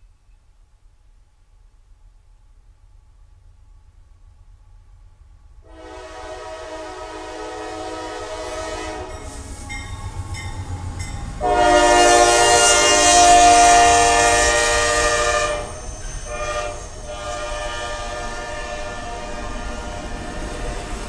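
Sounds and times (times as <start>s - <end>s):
train rumbling: 0.1s - 21.0s
locomotive air horn blasts: 5.6s - 9.7s, 11.4s - 21.0s.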